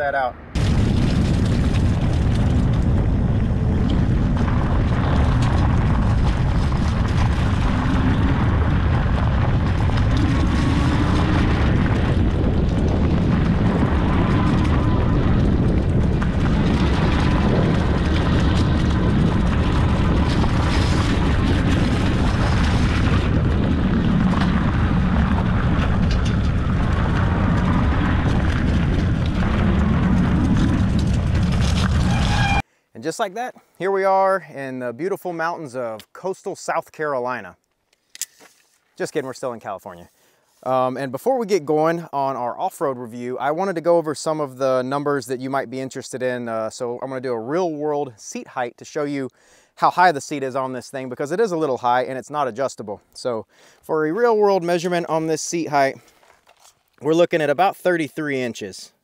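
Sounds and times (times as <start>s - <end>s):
wind rumble on microphone: 0.4s - 32.6s.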